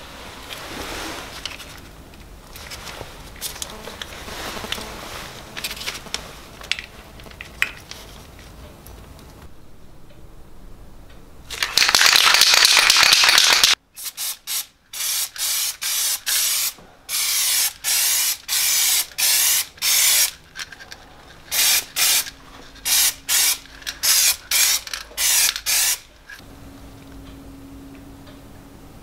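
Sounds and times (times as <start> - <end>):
spray can rattling: 5.5 - 8.0, 11.5 - 20.9, 21.5 - 26.4
spray paint hissing: 11.8 - 20.4, 21.5 - 26.0.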